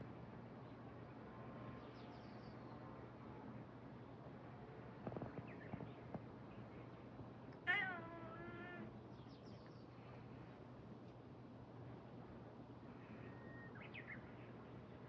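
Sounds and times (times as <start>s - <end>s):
cat meowing: 7.7s - 8.9s.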